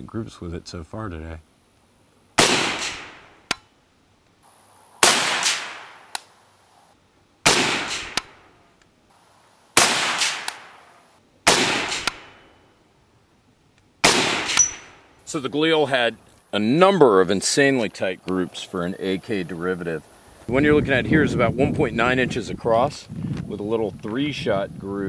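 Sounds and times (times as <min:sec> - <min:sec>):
rifle shots: 0:02.4 - 0:03.6, 0:05.0 - 0:06.2, 0:07.4 - 0:08.5, 0:09.8 - 0:12.5, 0:14.0 - 0:15.0.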